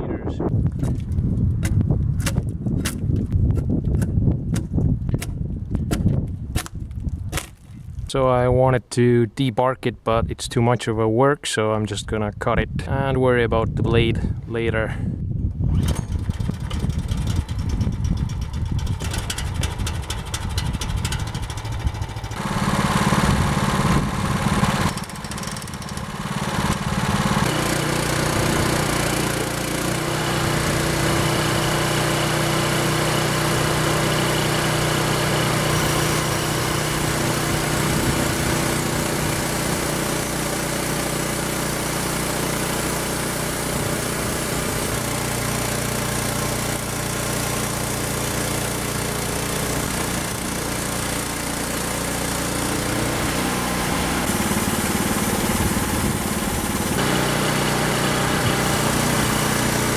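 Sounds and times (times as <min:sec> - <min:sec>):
sawmill engine running under load: 0:15.8 - 0:59.9.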